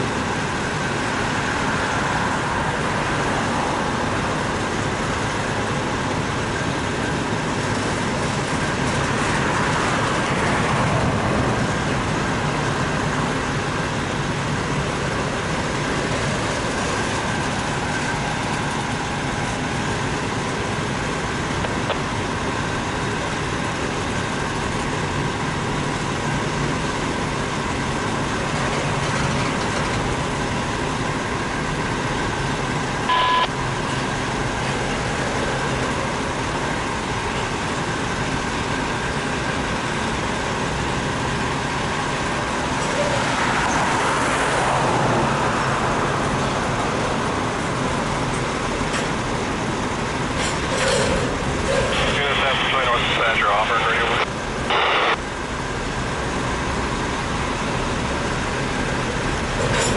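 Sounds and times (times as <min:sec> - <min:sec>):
short loud beep: 0:33.1 - 0:33.5
steel wheels rolling on rails: 0:41.2 - 0:52.1.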